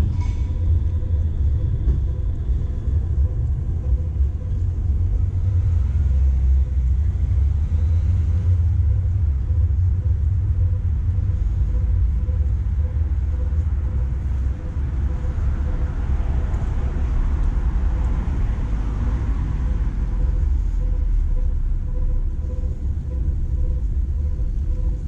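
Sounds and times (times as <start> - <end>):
low traffic rumble: 0.0 - 25.0
vehicle passing by: 5.2 - 8.9.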